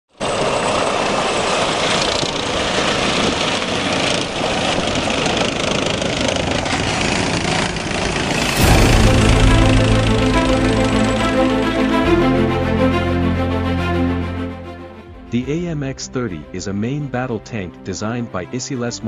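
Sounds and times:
tank diesel engine running: 0.1 - 16.3
tank tracks rolling on concrete: 0.2 - 8.5.

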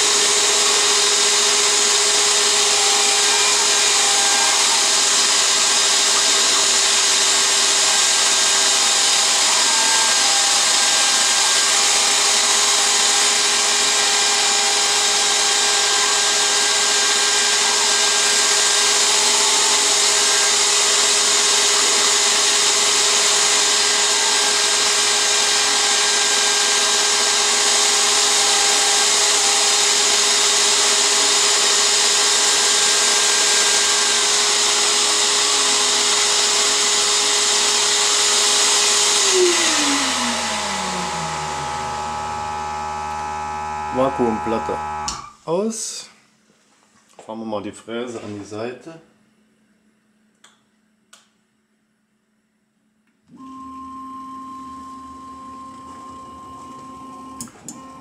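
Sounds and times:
router spindle whine: 0.0 - 45.3, 53.3 - 58.0
vacuum pump running: 0.0 - 45.3, 53.3 - 58.0.

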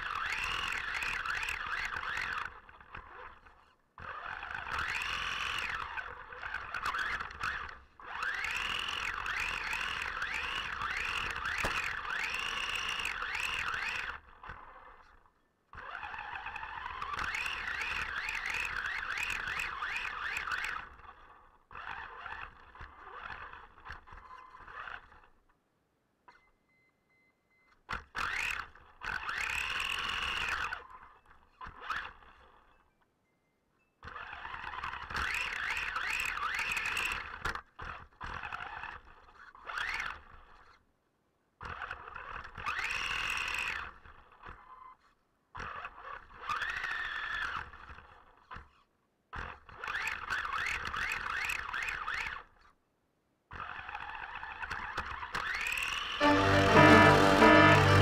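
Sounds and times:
rc car motor whining: 0.0 - 15.2, 15.8 - 21.0.

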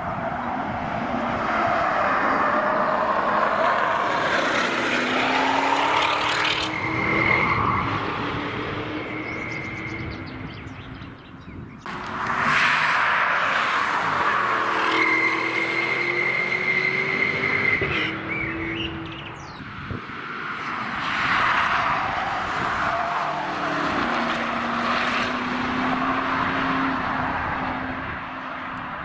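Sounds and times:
car engine revving past: 23.5 - 28.0.

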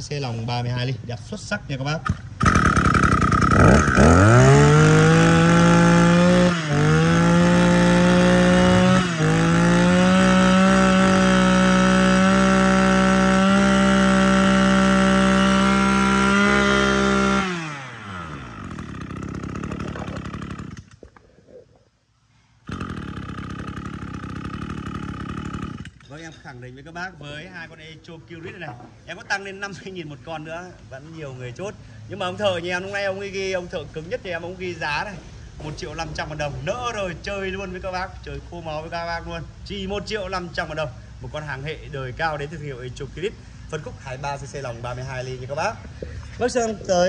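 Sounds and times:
brush cutter engine revving: 2.0 - 21.0, 22.6 - 26.1.

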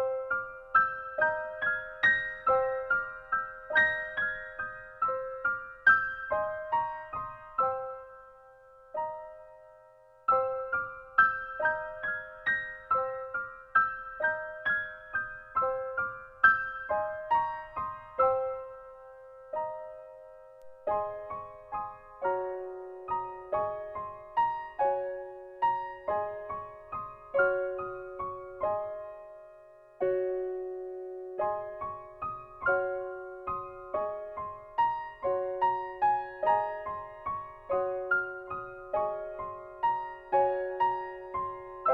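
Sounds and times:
slow piano melody: 0.0 - 41.9.

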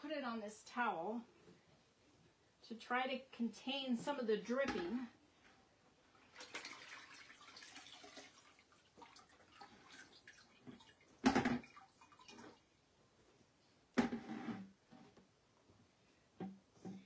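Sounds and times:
water dripping and trickling: 6.3 - 12.8.

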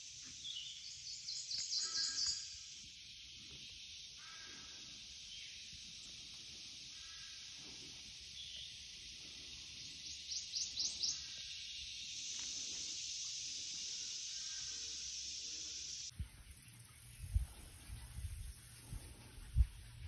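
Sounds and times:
insect chorus drone: 0.0 - 20.0
bird calling: 1.2 - 2.7, 16.1 - 20.0.

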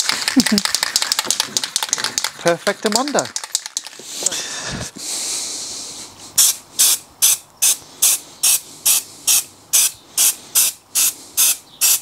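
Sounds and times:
spray paint can hissing: 6.4 - 12.0.

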